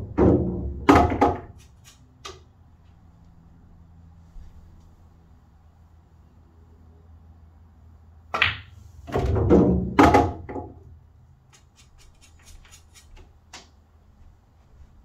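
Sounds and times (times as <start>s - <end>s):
billiard balls knocking: 0.0s - 1.6s, 8.3s - 10.8s.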